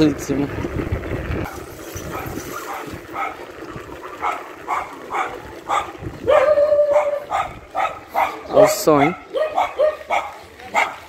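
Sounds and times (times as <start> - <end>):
dog barking: 2.1 - 3.4, 4.2 - 11.0.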